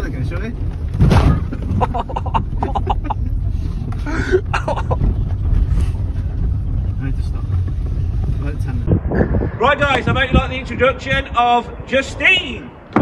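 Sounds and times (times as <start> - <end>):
knocks and rattles over bumps: 0.0 - 9.0
engine and tyre rumble: 0.0 - 13.0.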